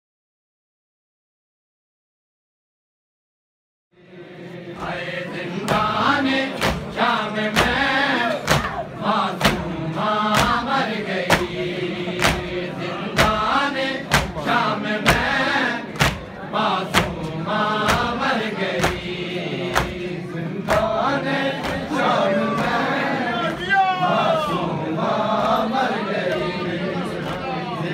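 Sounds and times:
men chanting in unison: 0:04.0 - 0:27.9
hand slaps on chests: 0:06.5 - 0:07.0, 0:08.4 - 0:08.8, 0:09.4 - 0:09.7, 0:10.3 - 0:11.6, 0:12.2 - 0:12.6, 0:13.2 - 0:14.5, 0:15.9 - 0:16.3, 0:16.9 - 0:18.2, 0:18.8 - 0:20.0, 0:20.7 - 0:20.9, 0:21.6 - 0:21.9.

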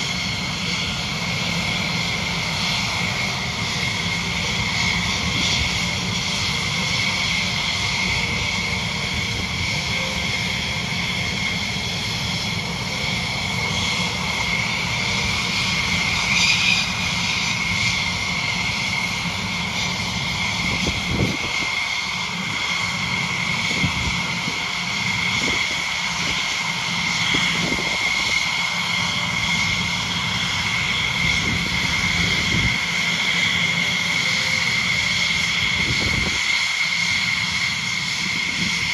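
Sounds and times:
jet engines whining: 0:00.0 - 0:38.9.

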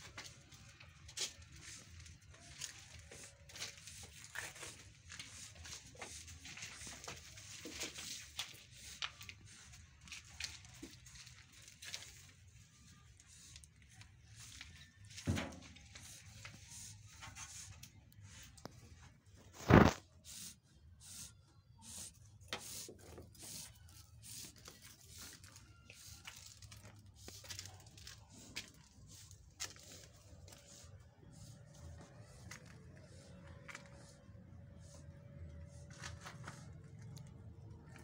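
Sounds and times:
sheep rustling on straw: 0:01.0 - 0:15.2.

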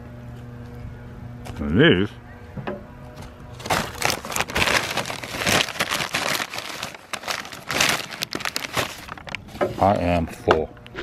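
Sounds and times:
paper bag crinkling: 0:03.2 - 0:10.0.

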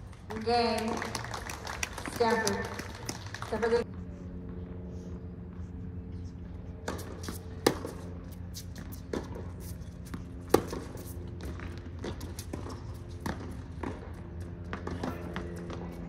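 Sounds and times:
steady low hum: 0:00.0 - 0:16.0
racket hitting tennis ball: 0:06.8 - 0:15.9
tennis ball bouncing: 0:06.8 - 0:16.0.

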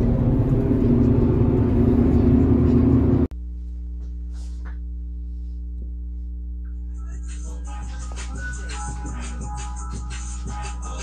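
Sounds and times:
road and engine rumble: 0:00.0 - 0:05.5
low hum of held tones: 0:00.0 - 0:08.0.

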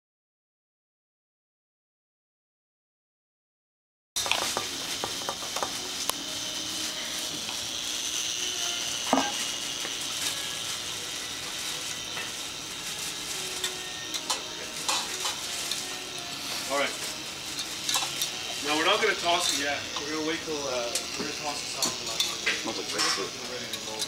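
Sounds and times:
steady sizzling hiss: 0:04.2 - 0:24.0
whisk scraping metal pot: 0:10.2 - 0:24.0.

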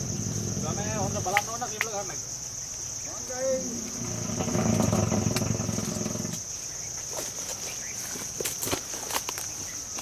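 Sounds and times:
low rumbling: 0:00.0 - 0:01.7, 0:03.6 - 0:06.4
high-pitched insect drone: 0:00.0 - 0:08.2
people moving in undergrowth: 0:03.0 - 0:10.0.

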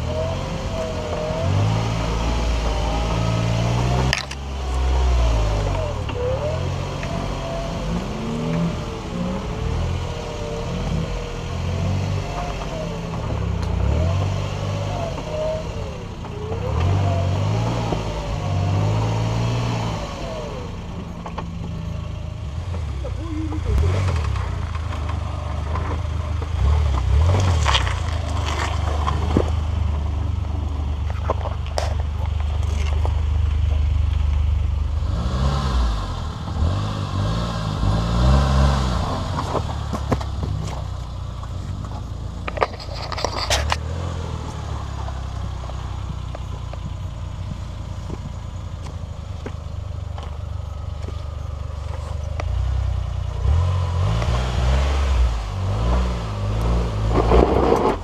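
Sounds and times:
engine running at low revs: 0:00.0 - 0:58.0
tyres crunching on stone: 0:23.9 - 0:30.3, 0:31.0 - 0:34.5, 0:38.7 - 0:52.8.

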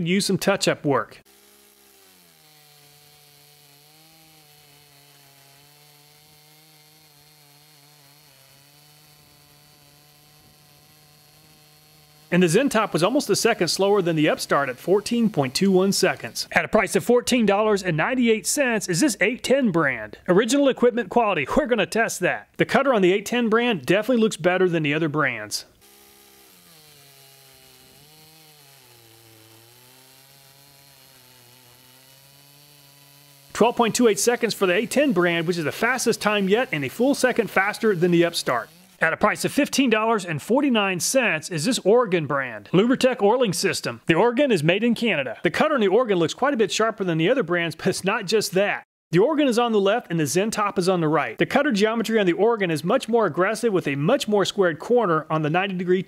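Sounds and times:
chainsaw cutting timber: 0:00.0 - 0:20.3, 0:22.7 - 0:45.7.

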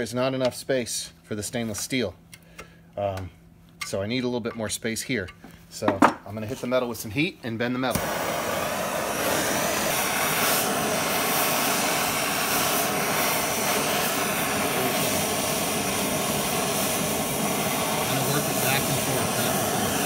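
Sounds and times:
gas torch flame hissing: 0:07.8 - 0:20.0.

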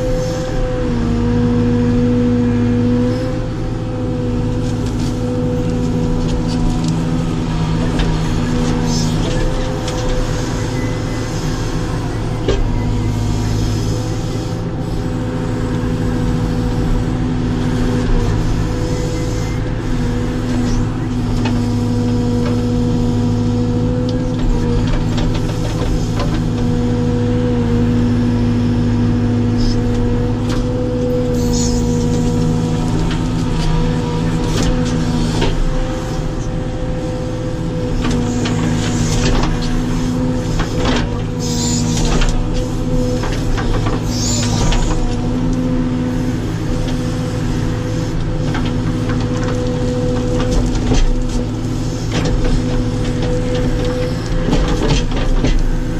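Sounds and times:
diesel engine running under load: 0:00.0 - 0:55.9.

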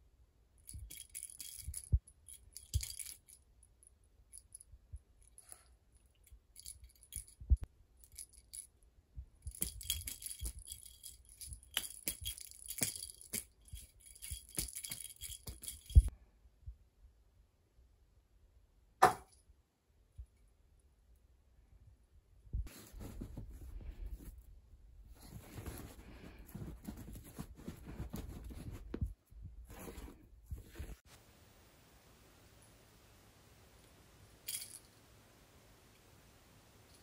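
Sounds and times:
cat toy jingly rattling: 0:00.7 - 0:03.4, 0:09.4 - 0:16.1, 0:34.4 - 0:35.0.

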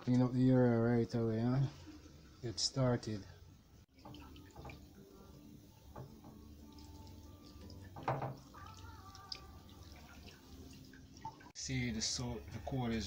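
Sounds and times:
water splashing and dripping: 0:03.9 - 0:11.6.

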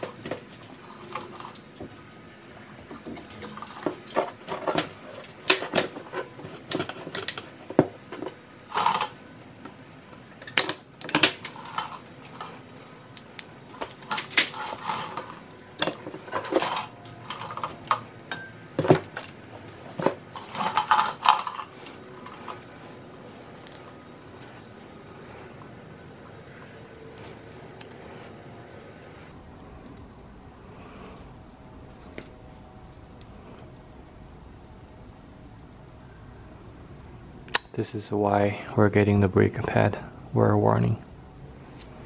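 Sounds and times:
metal brake pads clinking: 0:13.7 - 0:25.4.

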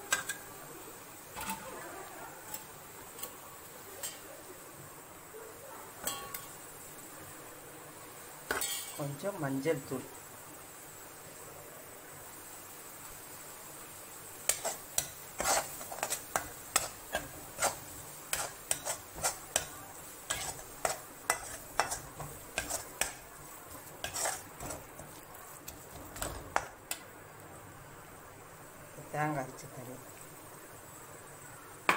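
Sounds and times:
metal ladle scraping a pan: 0:06.0 - 0:06.5, 0:08.5 - 0:09.0, 0:14.5 - 0:26.7.

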